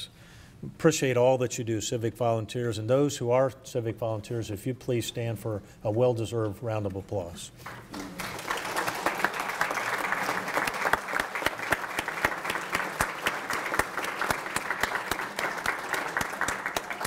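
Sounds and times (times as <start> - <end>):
audience applauding: 7.7 - 17.0.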